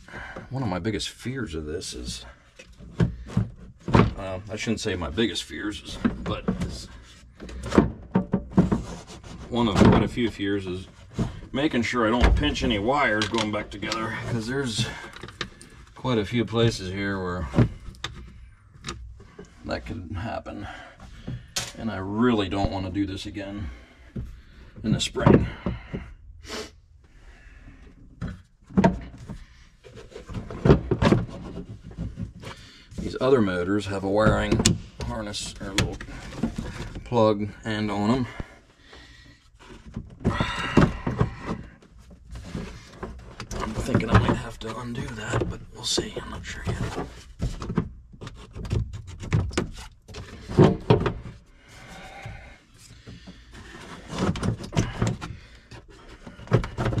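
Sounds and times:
plastic housing knocks and scrapes: 0:06.0 - 0:10.3, 0:28.2 - 0:33.1, 0:39.6 - 0:51.4, 0:52.2 - 0:57.0.

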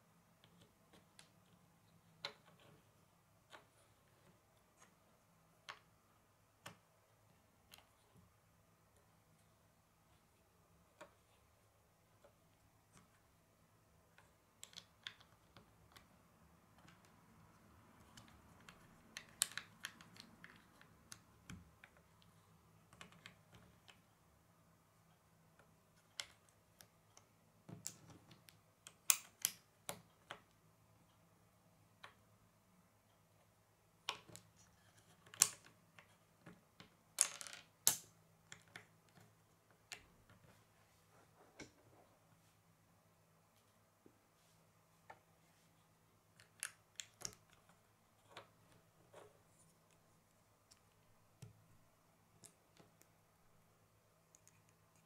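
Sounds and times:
plastic bricks clicking on table: 0:14.1 - 0:16.1, 0:18.0 - 0:22.0, 0:34.1 - 0:40.1.

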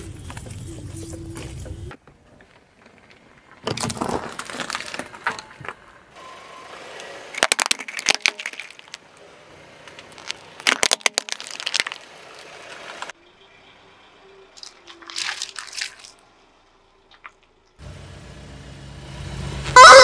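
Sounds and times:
plastic cracking: 0:02.8 - 0:05.8, 0:07.4 - 0:09.2, 0:09.9 - 0:13.1, 0:14.6 - 0:16.2
tyre crushing plastic: 0:02.8 - 0:05.8, 0:07.4 - 0:09.1, 0:09.9 - 0:13.1, 0:14.6 - 0:16.2.

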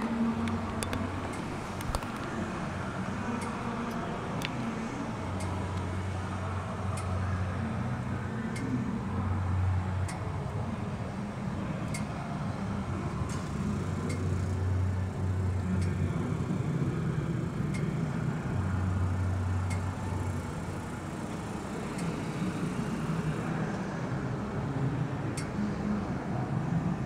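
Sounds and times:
car engine idling: 0:00.0 - 0:11.3.

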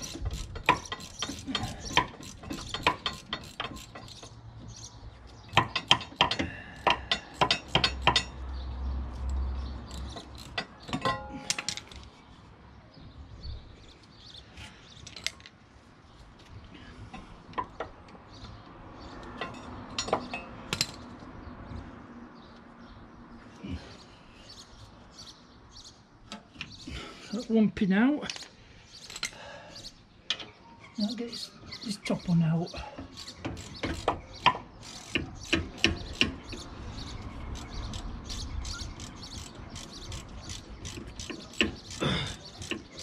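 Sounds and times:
socket ratchet clicking: 0:00.0 - 0:04.4, 0:37.3 - 0:43.0.

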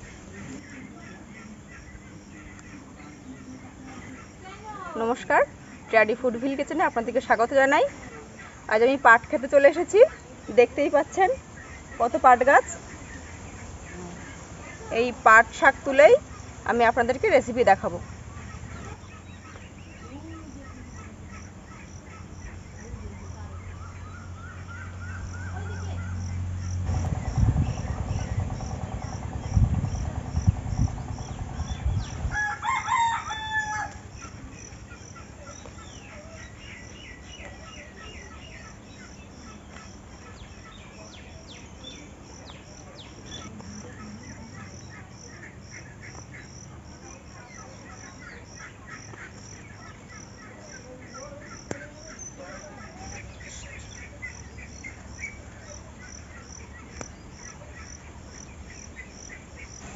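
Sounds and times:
insect chirping in pulses: 0:08.5 - 0:59.9
loud low thumps and rumble: 0:26.2 - 0:32.4
rooster crowing: 0:31.6 - 0:34.2.

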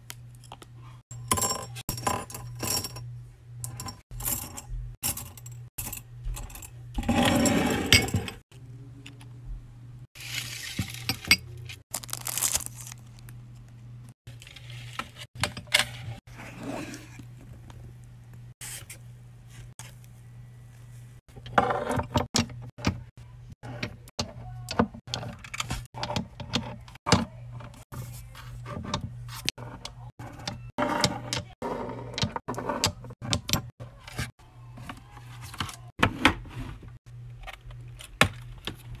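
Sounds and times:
low steady hum: 0:00.0 - 0:30.7.

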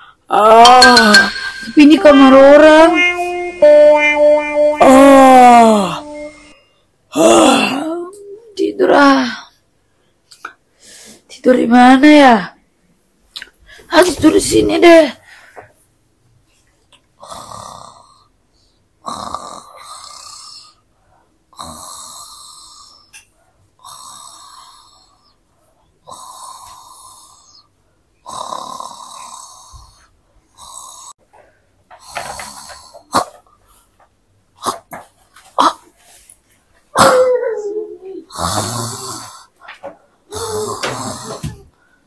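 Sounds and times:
snoring: 0:17.2 - 0:18.3, 0:19.0 - 0:20.8, 0:21.5 - 0:23.1, 0:23.8 - 0:25.2, 0:26.0 - 0:31.1, 0:38.3 - 0:39.5, 0:40.3 - 0:41.6.

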